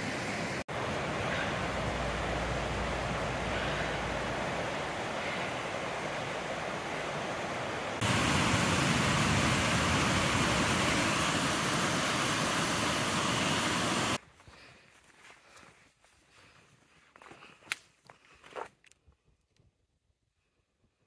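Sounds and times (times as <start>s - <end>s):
mountain stream over rocks: 0.0s - 14.2s
water cascading over rock ledge: 5.9s - 14.2s.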